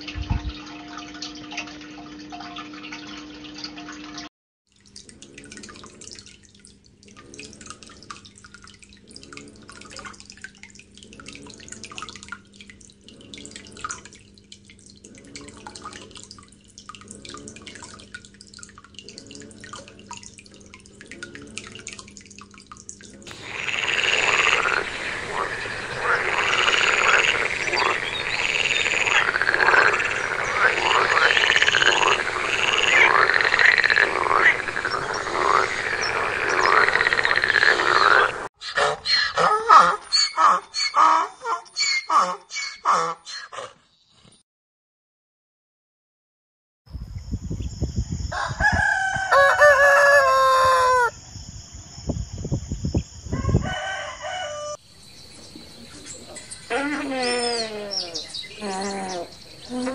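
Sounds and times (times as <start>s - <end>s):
aquarium water bubbling: 0.0s - 38.5s
frogs croaking: 23.3s - 41.2s, 48.2s - 59.9s.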